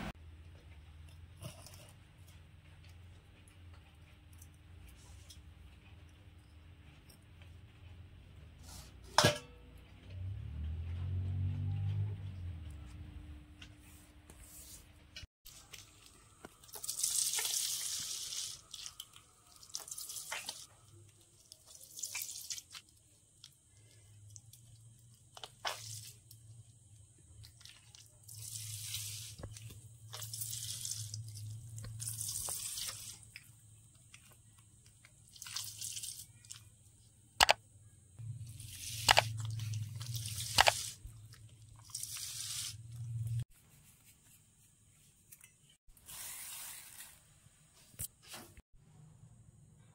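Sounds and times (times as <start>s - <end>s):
fruit pulp squelching: 15.5s - 37.0s, 38.2s - 43.5s.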